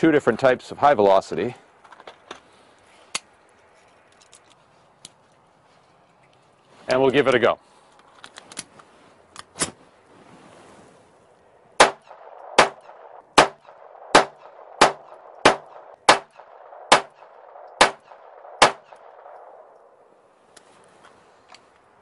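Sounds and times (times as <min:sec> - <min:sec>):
pistol shots: 0:11.8 - 0:19.6.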